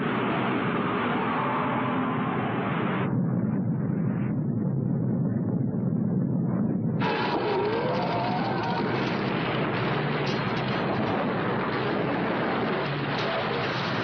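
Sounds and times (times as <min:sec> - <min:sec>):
rushing rumble of blast wind: 0:00.0 - 0:14.0.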